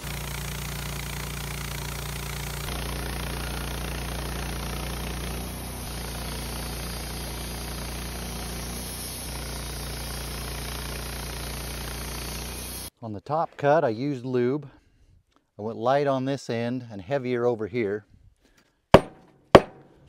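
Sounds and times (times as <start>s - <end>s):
band blade cutting log: 0.0s - 12.9s, 19.0s - 19.9s
bandsaw mill engine humming: 0.0s - 12.9s.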